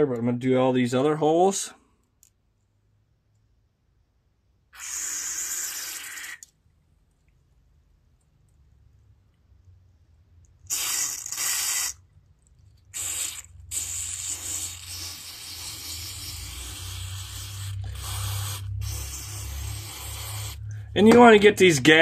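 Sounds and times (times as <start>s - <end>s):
aerosol spray hissing: 4.8s - 6.4s, 10.7s - 12.0s, 13.0s - 20.7s.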